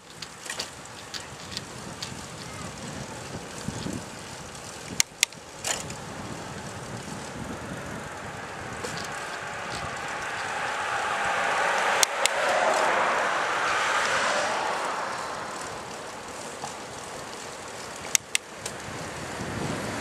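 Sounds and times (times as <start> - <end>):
bicycle road noise: 0.0 - 20.0
wind over microphone: 0.6 - 20.0
sharp clicks: 12.0 - 12.8, 17.9 - 18.8.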